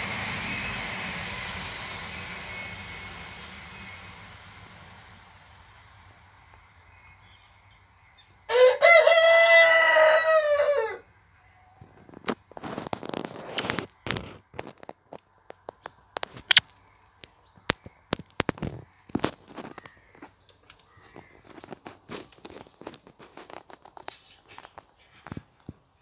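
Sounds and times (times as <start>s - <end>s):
rooster crowing: 8.5s - 11.1s
crackling and rustling: 11.7s - 26.0s.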